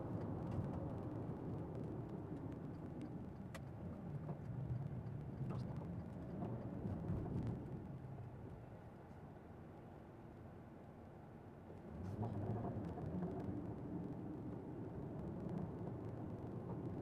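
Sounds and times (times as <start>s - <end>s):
car cabin road rumble: 0.0s - 8.4s, 11.8s - 17.0s.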